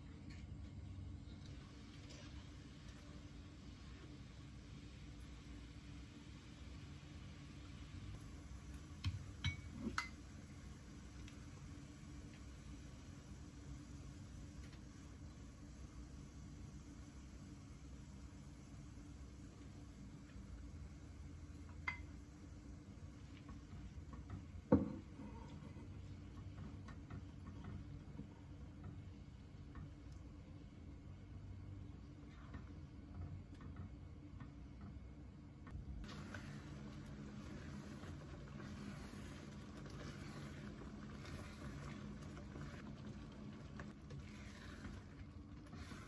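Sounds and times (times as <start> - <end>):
low steady hum: 0.0 - 46.0
syrup bubbling: 1.3 - 46.0
light ticks of rice stirring: 7.6 - 46.0
spatula scraping a pan: 44.1 - 46.0.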